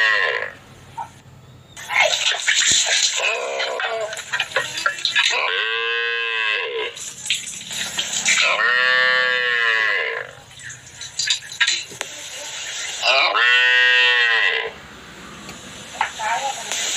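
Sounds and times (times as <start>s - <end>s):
calf mooing: 8.4s - 10.4s, 13.1s - 14.8s.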